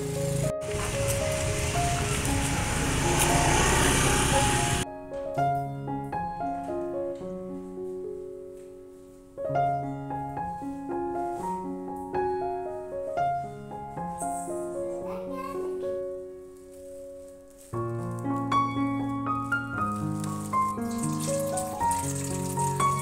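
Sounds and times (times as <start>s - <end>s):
street noise: 0.0s - 4.8s
solo piano music: 0.0s - 23.0s.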